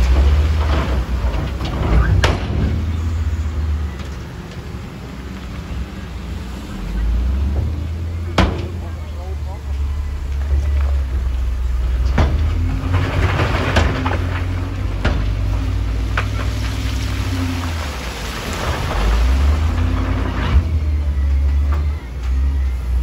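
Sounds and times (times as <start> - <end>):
diesel engine under load: 0.0 - 23.0
rock crunching and clattering: 8.2 - 23.0.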